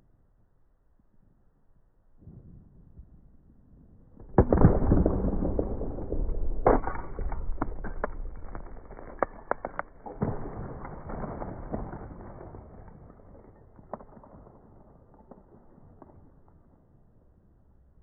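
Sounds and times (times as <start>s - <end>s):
ceramic vase smashing: 6.6s - 11.8s.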